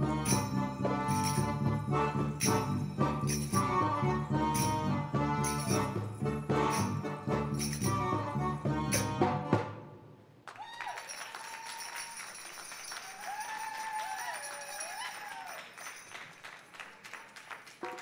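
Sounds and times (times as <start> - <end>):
accordion and drum music: 0.0 - 10.0
people cheering: 10.4 - 17.1
audience applauding: 10.4 - 18.0.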